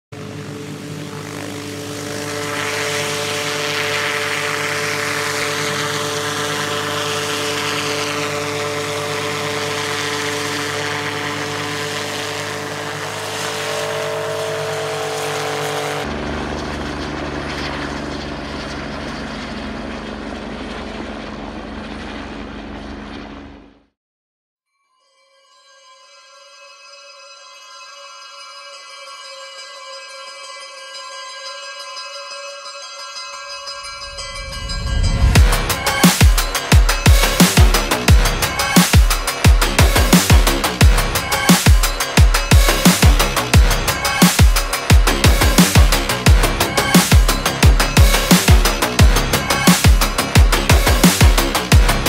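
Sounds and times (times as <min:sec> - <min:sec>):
helicopter engine whine: 0:00.1 - 0:23.9, 0:33.7 - 0:52.0
helicopter rotor rushing: 0:00.1 - 0:23.9, 0:33.8 - 0:52.0.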